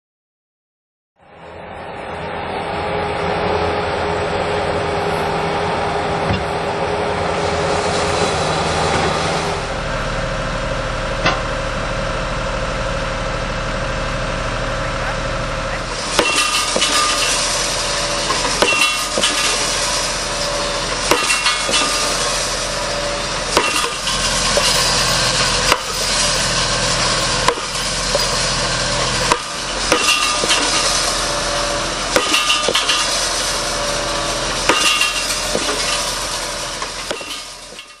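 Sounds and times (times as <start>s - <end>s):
tractor engine running: 1.4s - 38.0s
post driver hammering post: 18.4s - 19.6s, 23.6s - 24.7s, 27.4s - 28.3s, 29.2s - 30.7s, 32.2s - 33.0s, 34.6s - 35.8s, 37.1s - 37.4s.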